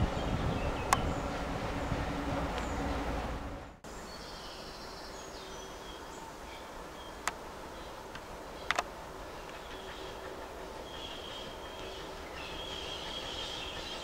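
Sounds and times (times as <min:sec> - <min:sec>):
low rumble: 0:00.0 - 0:03.8
birds chirping: 0:00.0 - 0:14.0.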